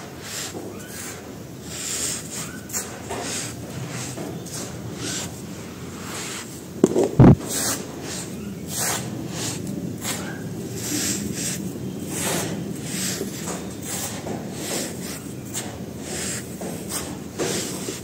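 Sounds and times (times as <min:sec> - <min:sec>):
dull thumps: 0:06.8 - 0:07.4.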